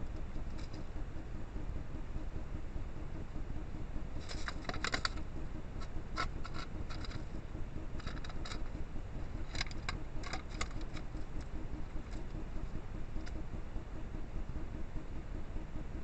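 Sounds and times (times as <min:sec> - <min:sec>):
rat scratching and scrabbling: 0:00.0 - 0:00.9, 0:04.1 - 0:13.4.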